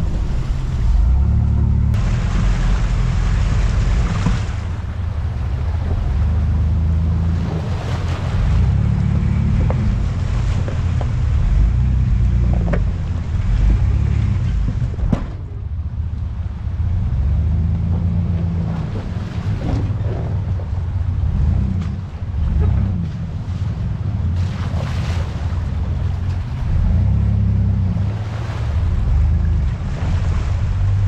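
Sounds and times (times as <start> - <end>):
truck knocks and rattles: 0.0 - 16.1
truck engine running: 0.0 - 31.0.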